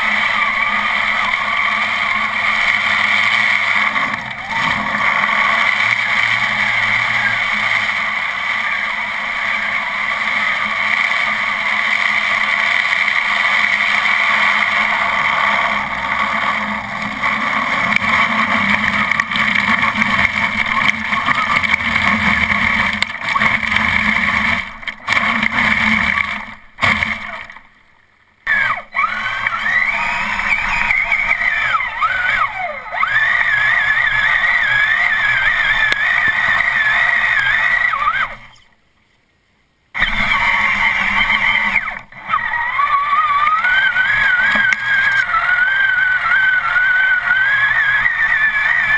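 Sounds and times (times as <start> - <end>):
electric motor whining: 0.0 - 27.6, 28.5 - 38.6, 40.0 - 48.9
water splashing off tyres: 0.0 - 27.7.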